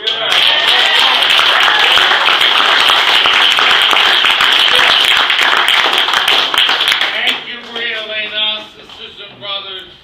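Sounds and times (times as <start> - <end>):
crowd applause: 0.0 - 7.4.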